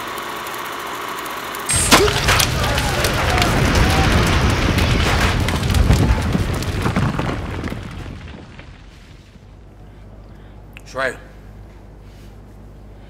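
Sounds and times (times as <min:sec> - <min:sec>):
explosion blast with crackling: 0:01.7 - 0:09.6.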